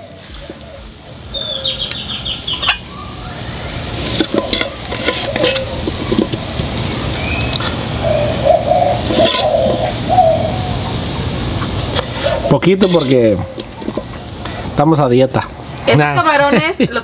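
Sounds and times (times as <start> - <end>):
dove cooing: 0.0 - 2.9, 3.6 - 14.2
birds chirping: 0.0 - 14.7
metal spatula scraping steel: 4.0 - 6.4, 9.0 - 9.8, 12.0 - 14.0.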